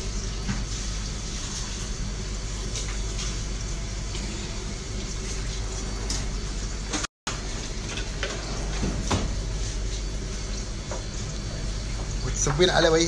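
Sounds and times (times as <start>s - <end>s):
oil sizzling: 9.3s - 13.0s.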